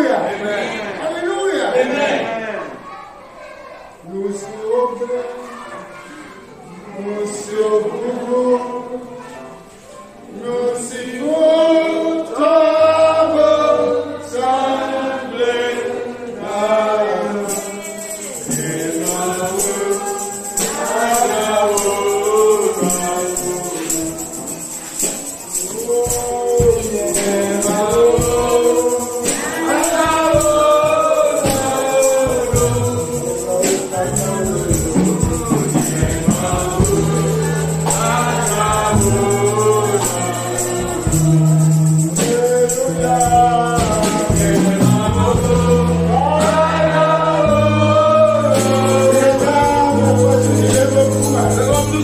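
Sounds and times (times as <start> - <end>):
voices singing together: 0.0 - 52.0
tambourine shaken and struck: 17.2 - 52.0
held bass notes: 26.0 - 52.0.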